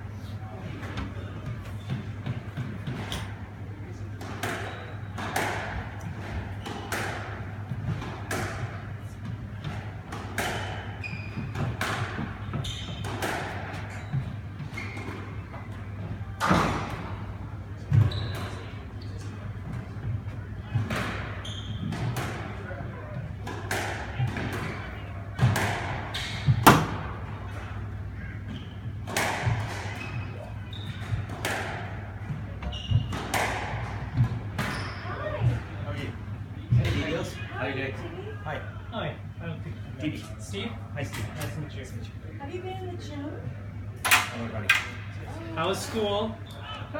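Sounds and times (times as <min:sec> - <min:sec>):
squash ball hits echoing: 0:04.3 - 0:08.8, 0:09.7 - 0:10.9, 0:11.5 - 0:13.9, 0:23.4 - 0:27.3, 0:29.0 - 0:30.2, 0:31.0 - 0:32.2, 0:33.0 - 0:35.7
shoe squeaks on wooden floor: 0:10.6 - 0:11.8, 0:12.4 - 0:13.2, 0:13.9 - 0:15.4, 0:18.0 - 0:19.3, 0:21.4 - 0:22.1, 0:29.9 - 0:31.3, 0:32.6 - 0:33.3, 0:34.6 - 0:35.4.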